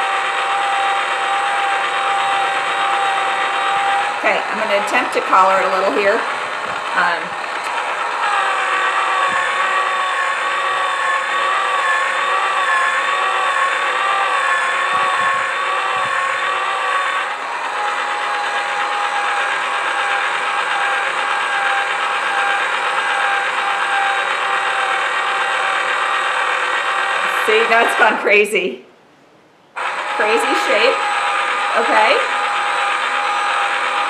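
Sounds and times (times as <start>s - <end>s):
small electric motor whining: 0.0s - 28.3s, 29.7s - 34.0s.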